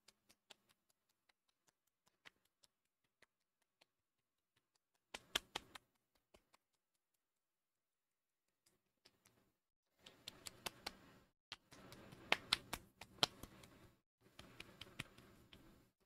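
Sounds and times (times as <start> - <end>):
hands patting skin: 0.0 - 7.0, 10.0 - 15.9.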